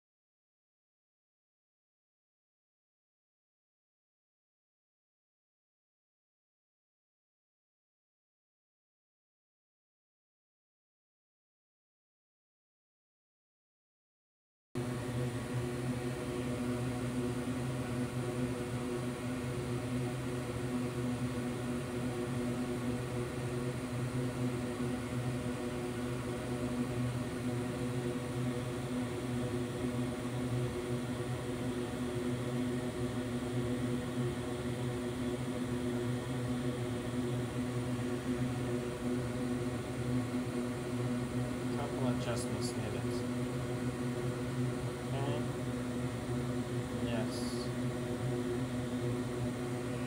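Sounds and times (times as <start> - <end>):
electric fan motor whirring: 14.8 - 50.0.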